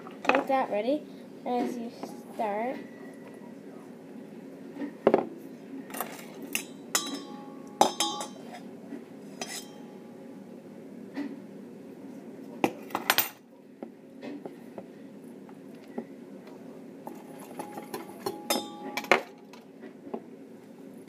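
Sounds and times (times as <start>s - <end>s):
clinks against steel bowl: 6.5s - 8.6s, 9.4s - 9.9s, 17.1s - 19.4s.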